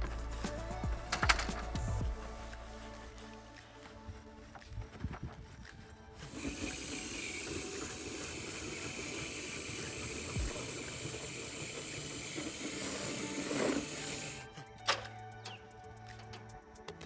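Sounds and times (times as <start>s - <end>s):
hose spraying water on siding: 6.2s - 14.5s.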